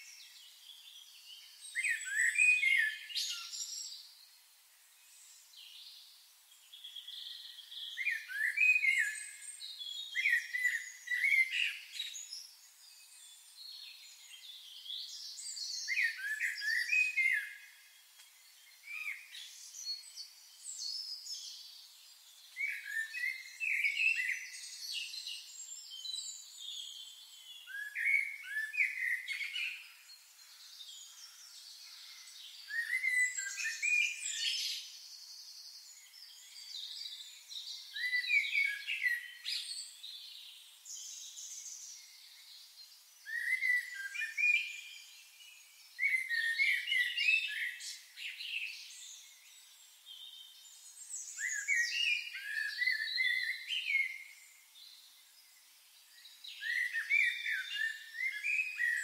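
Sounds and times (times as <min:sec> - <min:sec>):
songbird singing: 0:00.0 - 0:59.0.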